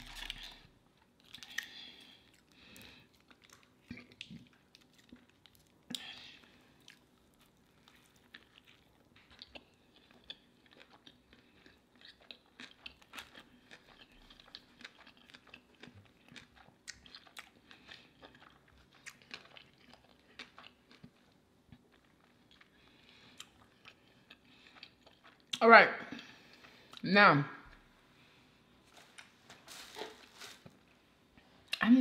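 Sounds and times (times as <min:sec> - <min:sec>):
close chewing with wet clicks: 0:01.2 - 0:06.2, 0:06.8 - 0:25.6.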